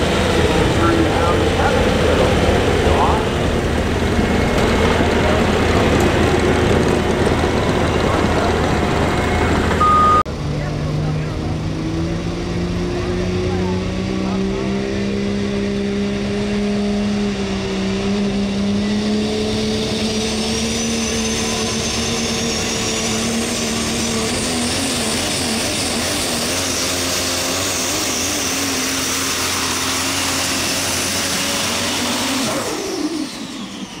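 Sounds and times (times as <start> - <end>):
diesel engine running hard: 0.0 - 34.0
turbocharger whistle: 18.7 - 34.0.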